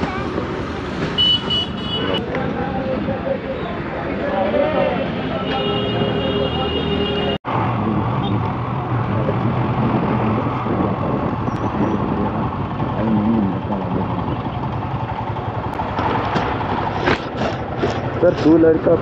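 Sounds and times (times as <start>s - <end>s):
road and wind noise: 0.0s - 19.0s
motorcycle engine running: 10.8s - 18.9s.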